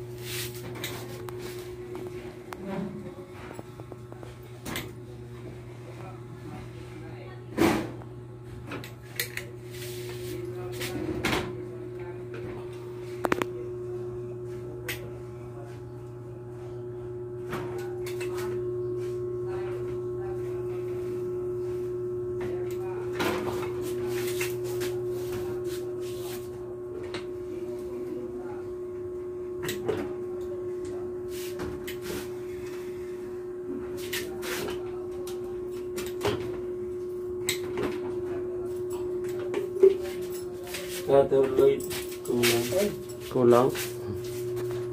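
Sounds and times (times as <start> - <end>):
steady hum: 0.0 - 44.9.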